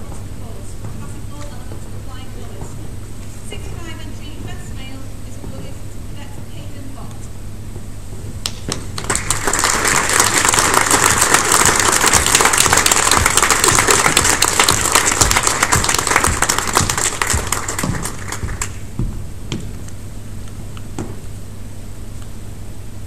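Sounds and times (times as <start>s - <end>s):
audience applauding: 8.7s - 18.9s.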